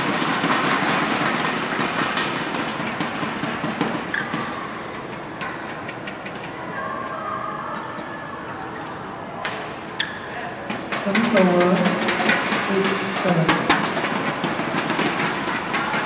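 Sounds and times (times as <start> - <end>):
hubbub of distant voices: 0.0 - 16.0.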